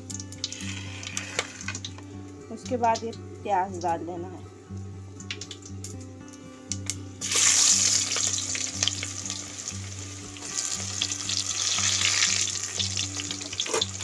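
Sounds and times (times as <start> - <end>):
onion sizzling in hot oil: 0.0 - 2.0, 7.2 - 14.0.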